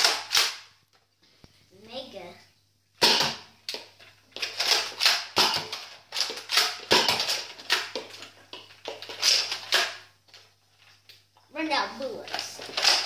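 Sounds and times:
toy blaster clacking and firing: 0.0 - 0.7, 4.4 - 8.0, 12.3 - 13.0.

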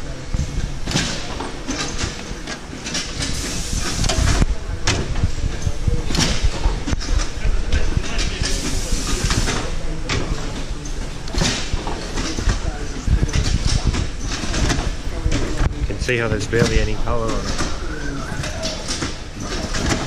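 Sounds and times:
pneumatic air hisses: 3.2 - 4.4, 8.4 - 9.7.

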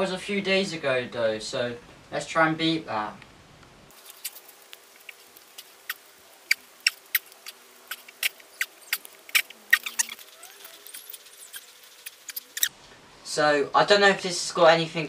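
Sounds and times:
squeaks on rubber gym mat: 5.6 - 12.7.

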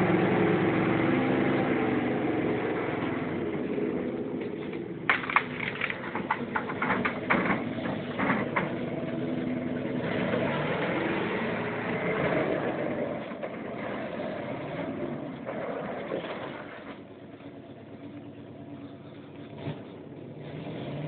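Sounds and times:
truck engine running: 0.0 - 21.0
sharp clacks and rattles: 4.4 - 8.9.

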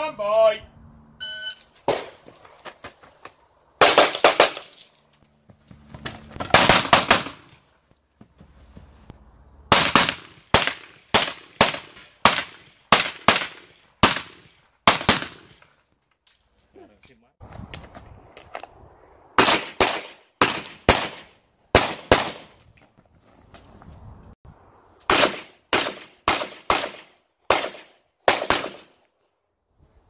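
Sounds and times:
pistol shots: 3.8 - 4.8, 6.5 - 7.5, 9.7 - 15.6, 19.4 - 22.5, 25.1 - 28.9.

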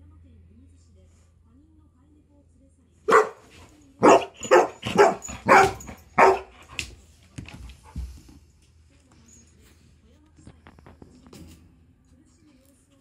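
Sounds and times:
dog barking: 3.1 - 6.8.

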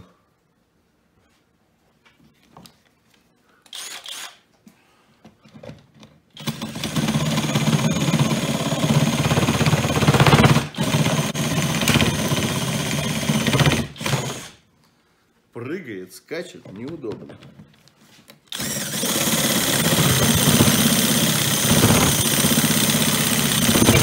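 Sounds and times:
saw attachment rattling: 18.6 - 24.0.

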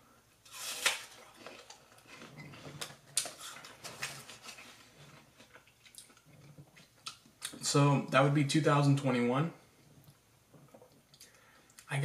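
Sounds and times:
person chewing apple: 0.5 - 7.6.

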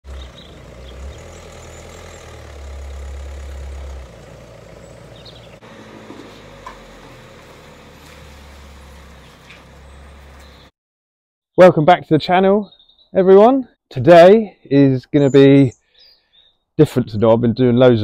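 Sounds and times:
diesel engine idling: 0.0 - 10.7.

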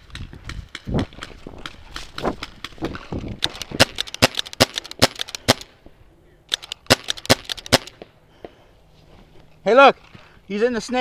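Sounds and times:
paintball markers firing: 3.4 - 5.7, 6.5 - 8.1.

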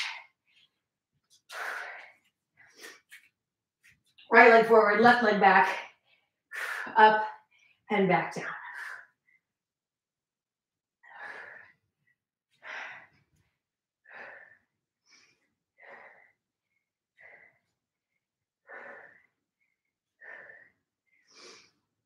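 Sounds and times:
woman breathing hard: 1.3 - 3.2, 11.0 - 18.0, 18.6 - 21.9.

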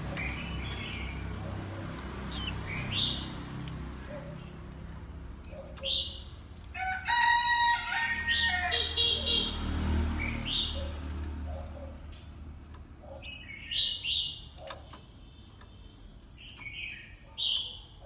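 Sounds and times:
bird chirping: 0.0 - 6.5, 10.1 - 12.2, 13.0 - 18.0.

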